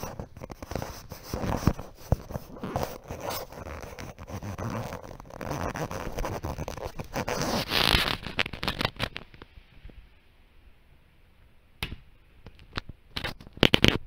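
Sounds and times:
scraping and rustling: 0.0s - 10.0s.

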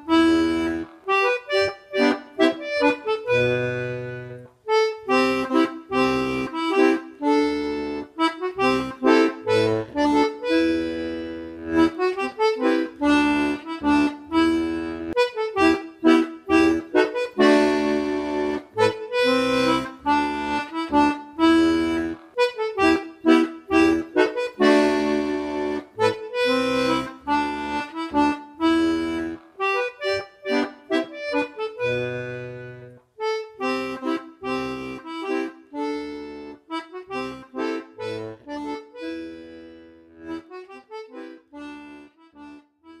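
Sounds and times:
melodeon folk tune: 0.0s - 43.0s.

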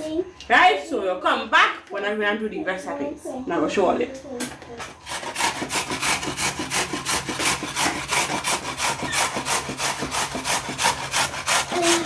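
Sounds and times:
rhythmic scraping strokes: 4.8s - 12.0s.

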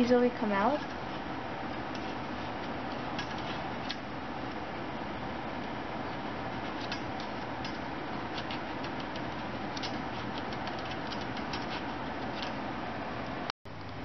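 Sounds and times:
steady rushing background noise: 0.8s - 12.8s.

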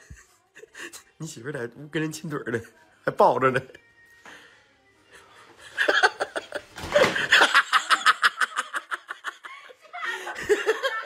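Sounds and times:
woman laughing hard: 5.7s - 11.0s.

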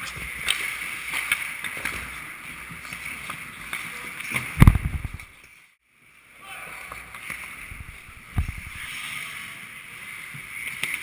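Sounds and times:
sticks and puck clicking: 0.0s - 2.1s
skates scraping ice: 0.0s - 11.0s.

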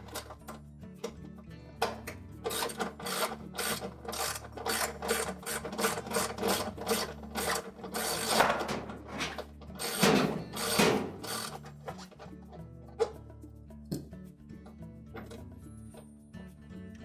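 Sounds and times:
hand ratchet rasping: 2.4s - 13.2s.

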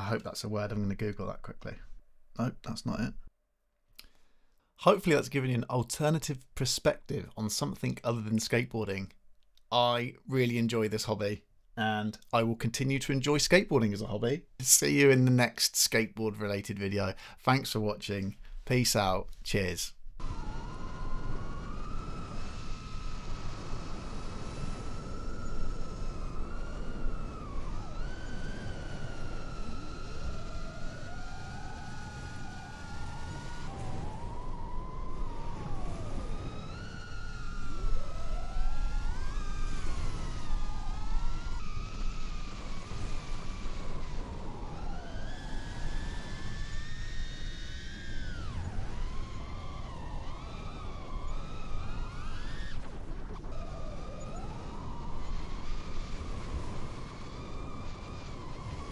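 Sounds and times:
drone motors whining: 20.2s - 58.9s.

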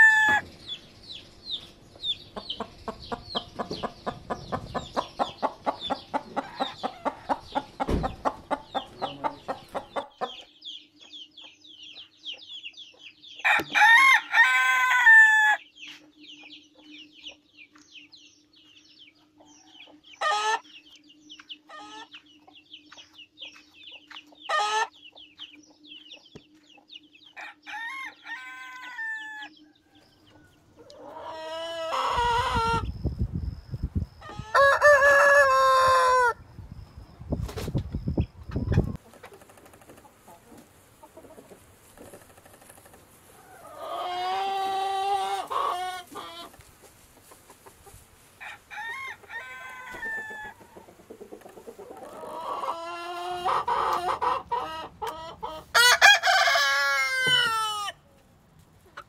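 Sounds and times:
rooster crowing: 0.0s - 0.4s, 13.5s - 15.6s, 27.4s - 32.8s, 34.3s - 36.4s, 48.4s - 50.7s, 55.7s - 58.0s
chickens clucking: 0.0s - 59.0s.

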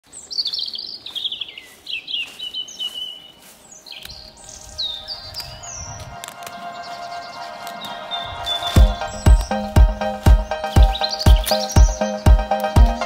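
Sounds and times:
songbirds singing: 0.0s - 13.0s
music: 4.6s - 13.0s.

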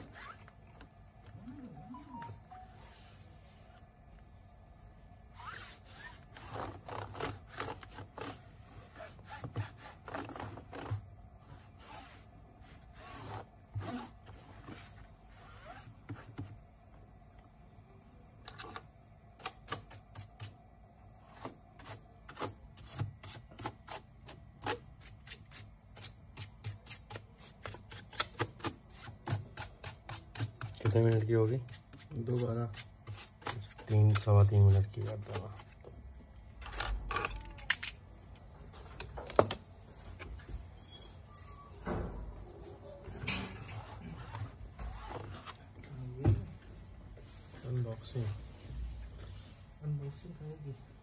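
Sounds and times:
cloth rubbing laptop: 0.0s - 0.7s, 1.9s - 3.9s, 4.8s - 16.6s, 43.5s - 45.7s.

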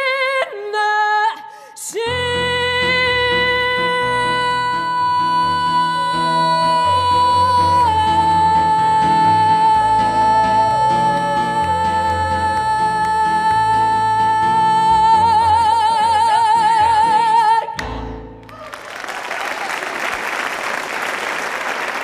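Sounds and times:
piano: 0.0s - 21.3s
audience applause: 18.4s - 22.0s.

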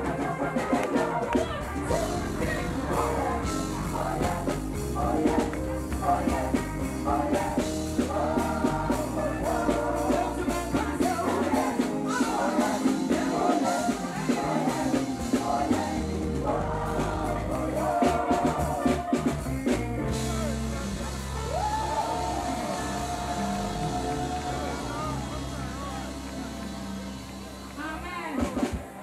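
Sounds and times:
woman singing lead: 0.0s - 19.7s
drums keeping a beat: 0.0s - 29.0s
gospel band playing: 0.0s - 29.0s.

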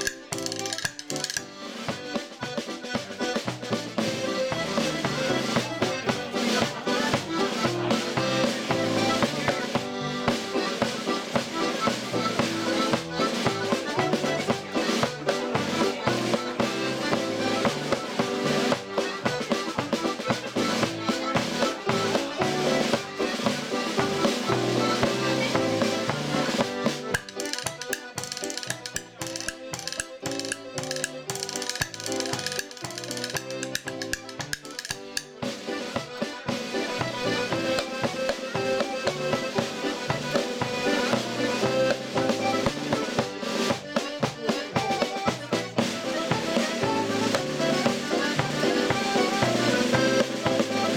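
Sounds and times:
wood block tapping: 0.0s - 1.6s, 27.1s - 35.4s
accordions playing dance tune: 0.0s - 50.9s
snare drum: 0.0s - 50.9s
tenor banjo: 0.0s - 50.9s.

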